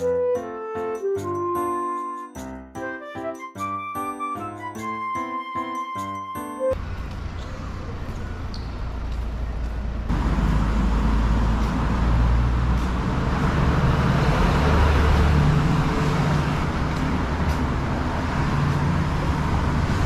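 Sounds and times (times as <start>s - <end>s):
road traffic passing: 6.7s - 20.0s.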